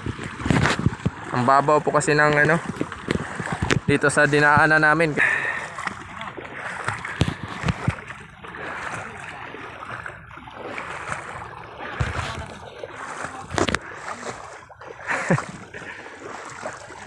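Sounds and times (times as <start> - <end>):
sea water splashing and sloshing: 0.0 - 17.0.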